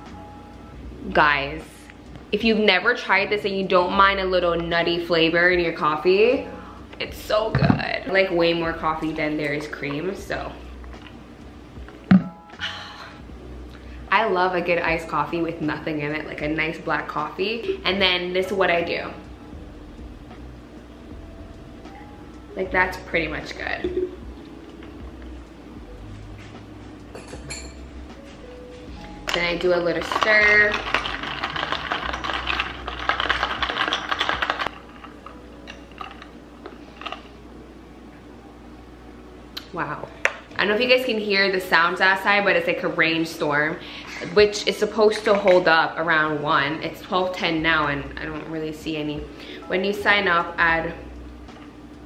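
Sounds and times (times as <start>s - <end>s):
ice cubes rattling in plastic cup: 30.0s - 35.2s.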